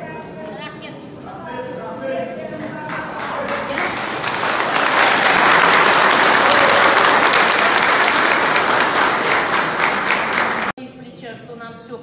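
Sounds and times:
crowd applauding: 2.6 - 10.8.

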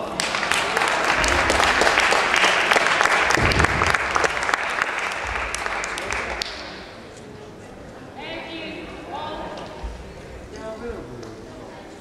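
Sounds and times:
spectators applauding: 0.0 - 6.6.

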